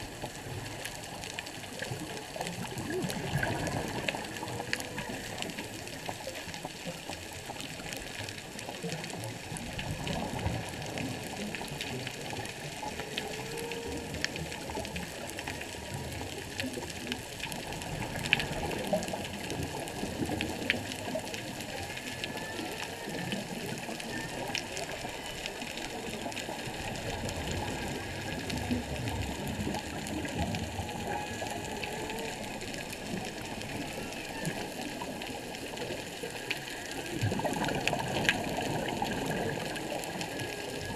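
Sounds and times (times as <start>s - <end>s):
crackling clicks: 0.0s - 40.9s
whale calls: 11.3s - 16.5s, 18.7s - 40.9s.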